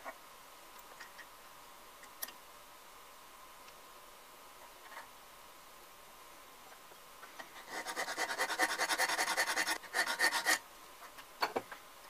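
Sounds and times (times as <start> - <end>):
metal file rasping on steel: 7.6 - 10.6.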